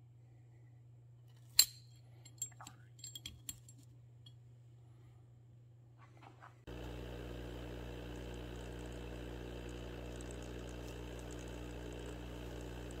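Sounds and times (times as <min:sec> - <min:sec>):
air pump humming: 0:06.7 - 0:13.0.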